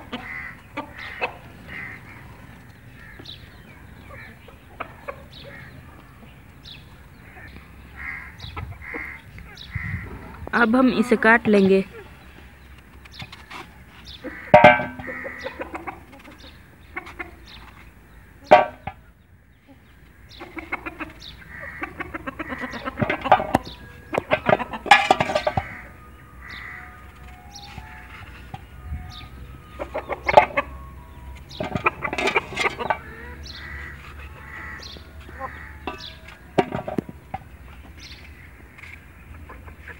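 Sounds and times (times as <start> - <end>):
chickens calling: 0.0 - 39.9
pieces dropping into metal pot: 24.3 - 25.7.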